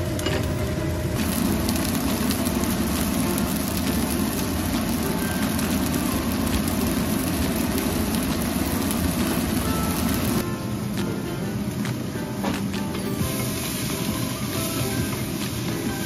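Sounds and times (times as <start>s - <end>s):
vegetables sizzling in oil: 1.2s - 10.4s, 13.1s - 16.0s.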